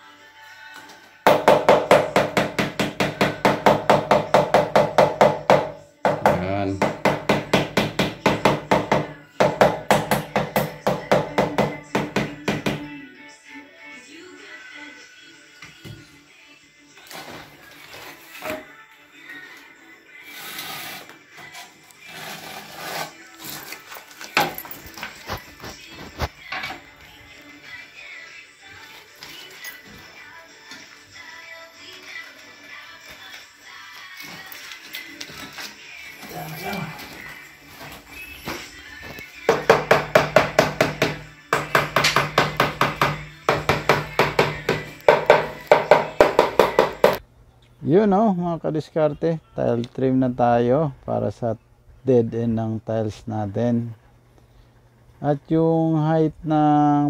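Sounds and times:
trowel scraping mortar: 20.2 - 23.9.

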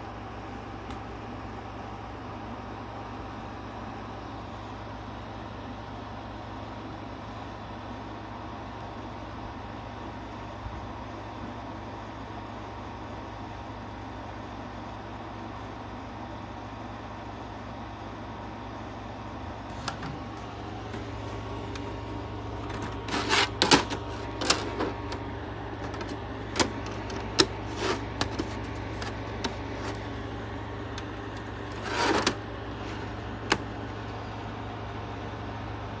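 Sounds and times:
steady low hum: 0.0 - 36.0
scraping rustle: 22.6 - 25.0, 26.8 - 30.1, 31.7 - 33.1
plastic case clicks: 25.8 - 30.0.

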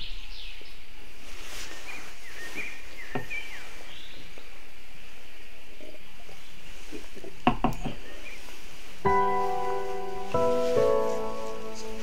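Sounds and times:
steady outdoor hiss: 0.0 - 12.0
birds chirping: 1.6 - 4.6, 5.8 - 12.0.

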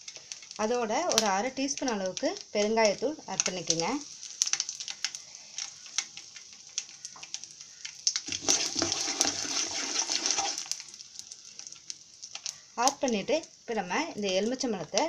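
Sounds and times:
oil sizzling and crackling: 0.0 - 15.0.

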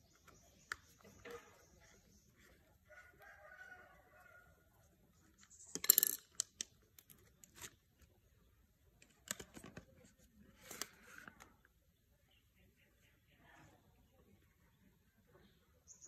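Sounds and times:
plastic housing clicks and rattles: 5.4 - 7.8, 9.0 - 9.9.

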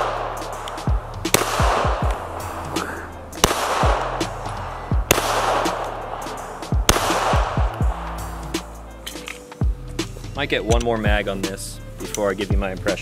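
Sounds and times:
pistol shots with echo: 0.0 - 2.4, 3.4 - 4.4, 5.0 - 8.7
music with deep bass hits: 0.0 - 13.0.

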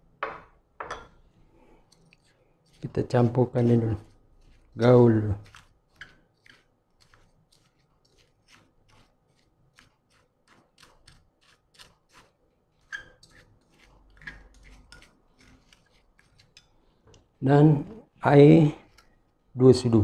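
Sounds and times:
spoon scraping ceramic bowl: 1.8 - 16.9.

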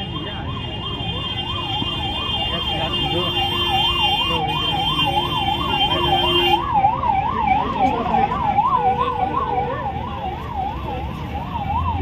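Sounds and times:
crowd chatter and shuffling: 0.0 - 12.0
siren warbling: 3.4 - 12.0.

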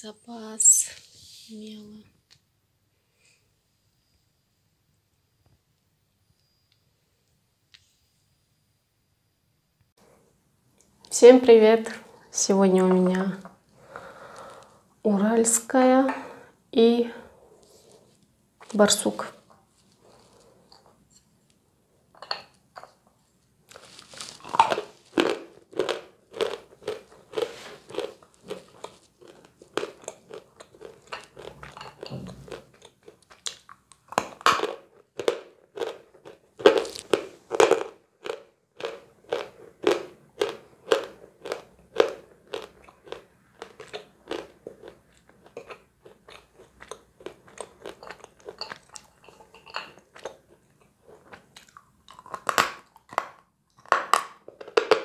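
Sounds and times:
biting and chewing chalk: 23.8 - 53.9.

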